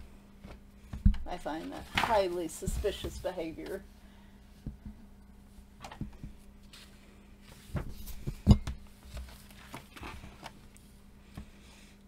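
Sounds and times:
book pages turning: 1.5 - 3.8, 9.0 - 10.9.

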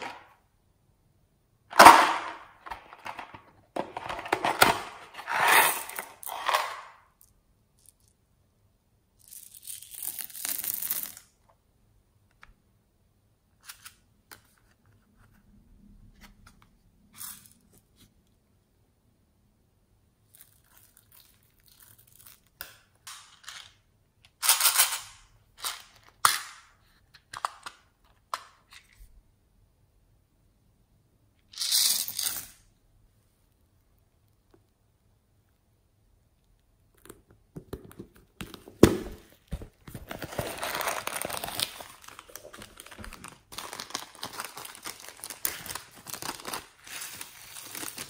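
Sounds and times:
plastic storage case handled: 2.6 - 5.3.

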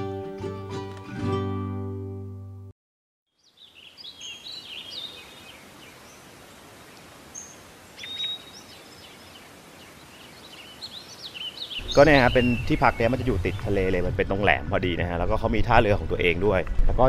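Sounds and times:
guitar music: 0.0 - 2.7
birds chirping: 3.3 - 15.6
outdoor background hiss: 3.4 - 17.0.

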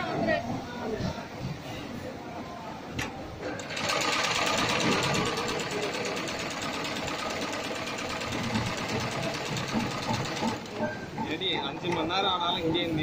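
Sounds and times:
sewing machine running: 3.6 - 10.8.

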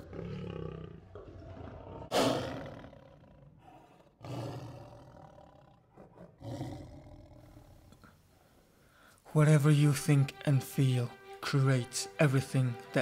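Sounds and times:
lion roaring: 0.0 - 8.0.

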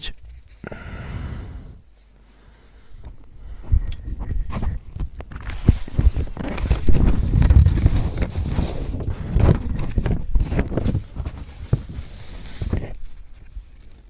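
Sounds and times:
paper rustling and shuffling: 0.0 - 0.6, 4.0 - 14.0.

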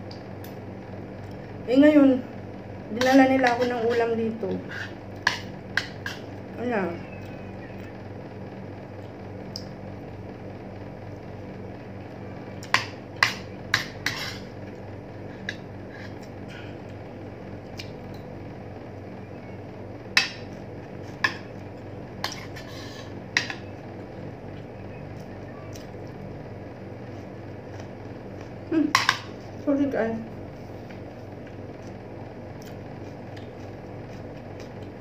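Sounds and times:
steady low hum: 0.0 - 35.0
cutlery clinking against dishes: 12.7 - 14.5.

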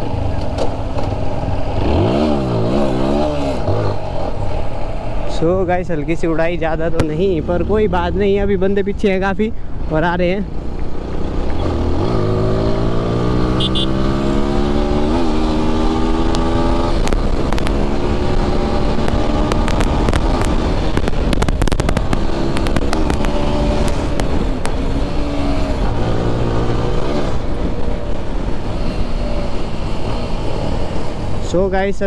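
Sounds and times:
motorcycle engine accelerating: 0.0 - 5.2, 10.6 - 31.4
wind rush on microphone: 10.8 - 32.0
sharp clicks: 19.0 - 24.8.

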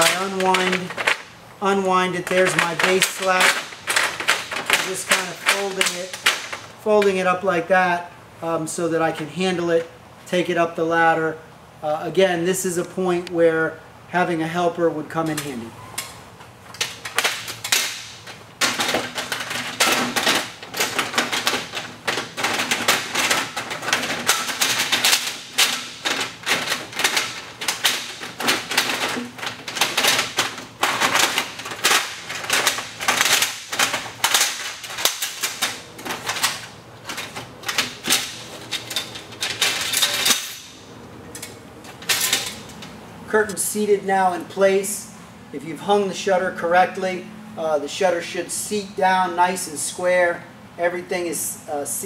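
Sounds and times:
rolling shutter slats rattling: 0.0 - 7.2, 16.7 - 43.6.

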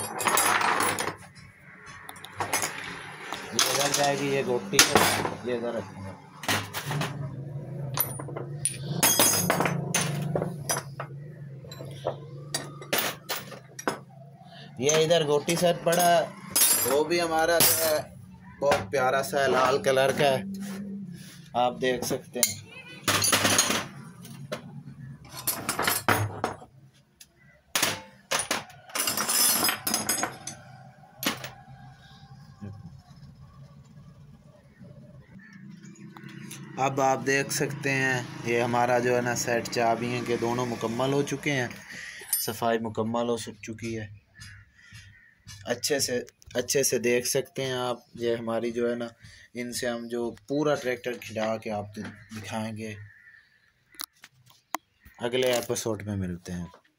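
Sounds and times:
metal tools clattering on wood: 0.0 - 1.5, 2.2 - 5.6, 6.2 - 20.3, 21.9 - 26.7, 27.7 - 31.6, 42.2 - 42.7.

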